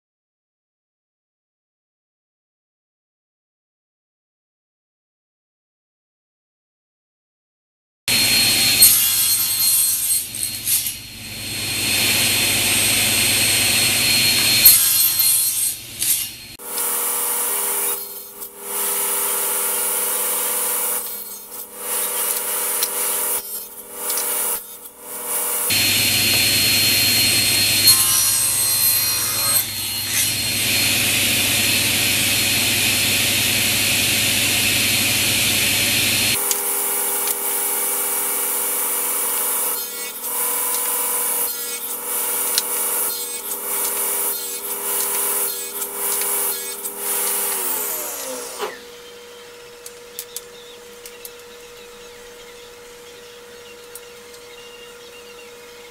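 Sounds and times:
saw motor spinning down: 8.1s - 49.5s
table saw cutting wood: 8.1s - 49.6s.

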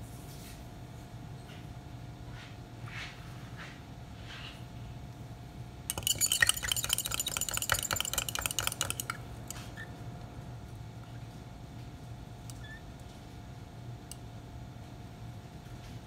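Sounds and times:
stirring rod clinking in glass beaker: 5.9s - 9.7s.

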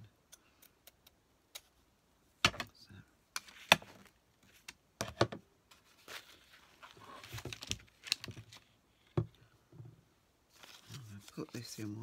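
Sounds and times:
paper rustling: 5.7s - 9.1s, 10.5s - 12.0s.

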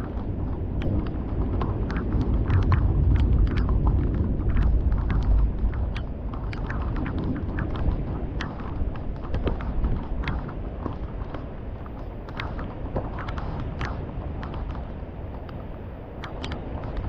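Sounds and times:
thunder rumbling: 0.0s - 11.5s
heavy raindrops ticking: 0.0s - 17.0s.

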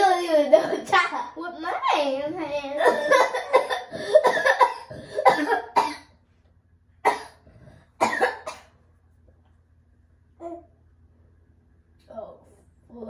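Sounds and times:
person coughing: 2.8s - 6.1s, 7.1s - 7.4s, 8.0s - 8.8s.

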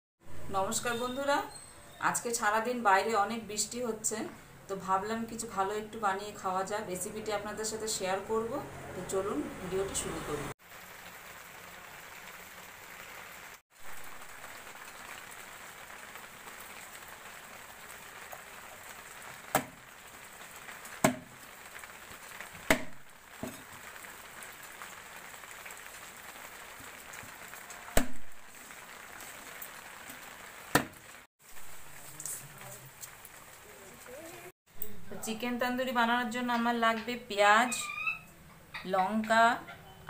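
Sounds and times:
rain hissing: 10.5s - 34.6s
cleaver chopping chicken on wood: 21.0s - 21.3s, 22.7s - 23.0s.

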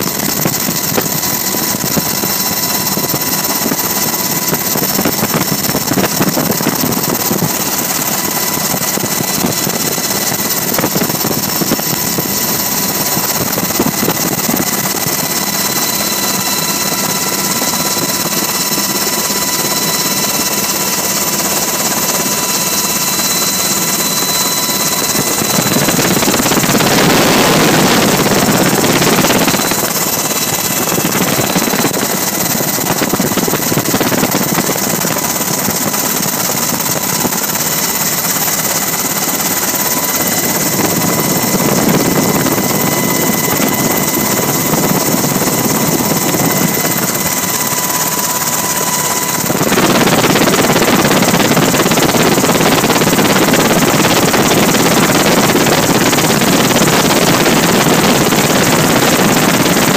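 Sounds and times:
helicopter rotor and turbine noise: 0.0s - 59.9s
high whining tones: 22.1s - 53.2s.

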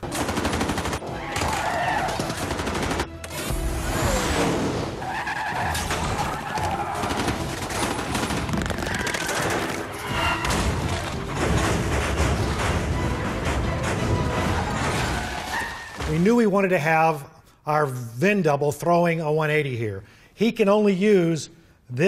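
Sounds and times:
machine-gun fire: 0.0s - 3.2s, 7.0s - 9.9s
film music: 0.0s - 16.8s
car engines and tyres: 3.6s - 7.0s.

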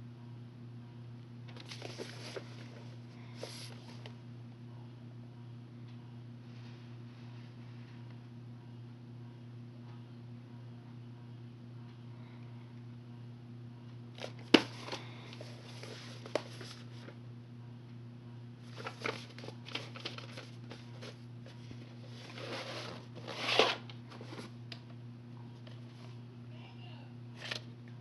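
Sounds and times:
steady low hum: 0.0s - 28.0s
plastic cassettes clicking and knocking: 14.2s - 15.4s.

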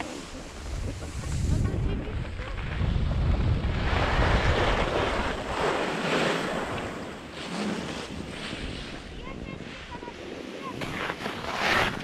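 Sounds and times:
skis carving on snow: 0.0s - 12.0s
wind rumbling on microphone: 0.0s - 12.0s.

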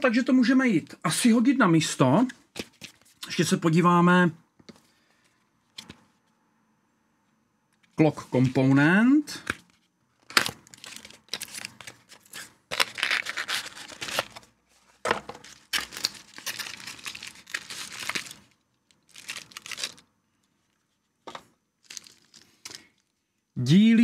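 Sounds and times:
plastic bag crinkling: 10.2s - 14.5s, 15.3s - 20.8s, 21.8s - 23.1s
cardboard box tearing and rustling: 10.4s - 14.4s.

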